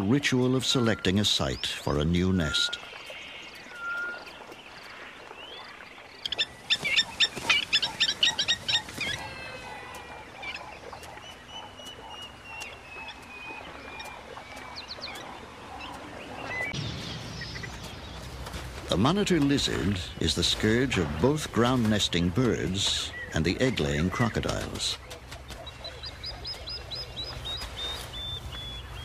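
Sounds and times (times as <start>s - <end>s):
thin whistled bird notes: 0.7s - 18.2s
sharp high bird calls: 6.2s - 16.8s.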